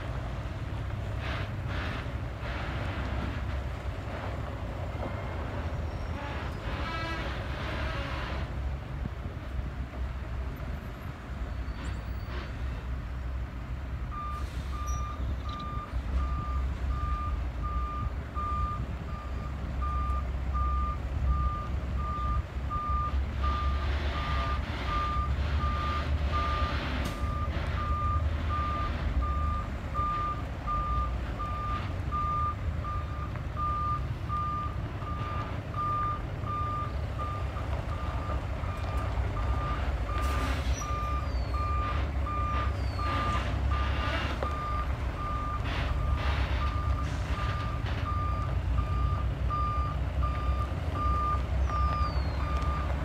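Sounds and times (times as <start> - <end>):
truck engine running low: 0.0 - 53.0
reversing alarm beeping: 14.2 - 52.9.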